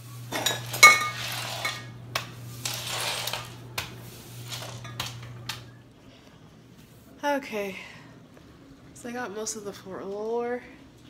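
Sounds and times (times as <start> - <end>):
broom sweeping broken glass: 0.3 - 5.5.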